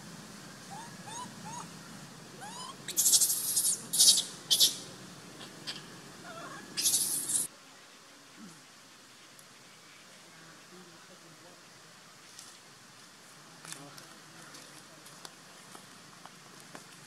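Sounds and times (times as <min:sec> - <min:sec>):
baby monkey shrill screeches: 0:00.7 - 0:01.7, 0:02.4 - 0:04.8, 0:05.7 - 0:07.5
baby monkey whimpering: 0:00.7 - 0:01.7, 0:02.4 - 0:04.8, 0:05.7 - 0:07.5.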